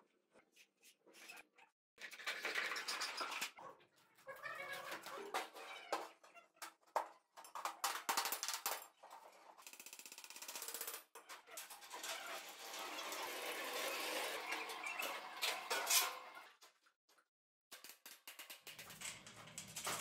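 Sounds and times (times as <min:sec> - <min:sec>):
metal scrapes and clanks: 0:11.7 - 0:16.4.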